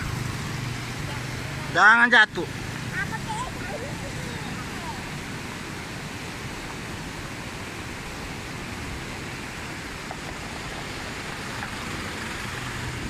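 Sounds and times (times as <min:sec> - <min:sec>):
vehicle passing: 0:00.0 - 0:05.1, 0:11.0 - 0:13.0
river water rushing: 0:00.0 - 0:13.0.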